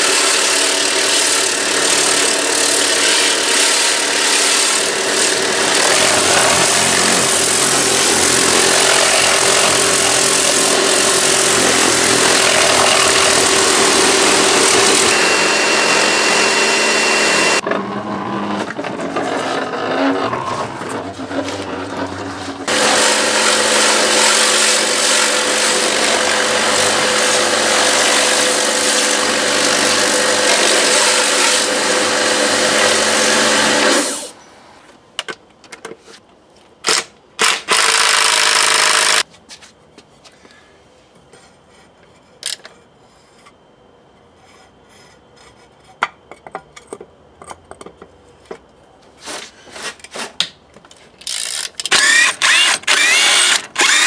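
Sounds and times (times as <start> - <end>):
cordless drill bursts: 0.0 - 17.6, 36.9 - 39.2, 51.3 - 54.0
constant hum: 39.2 - 54.0
ratchet clicks: 51.2 - 54.0.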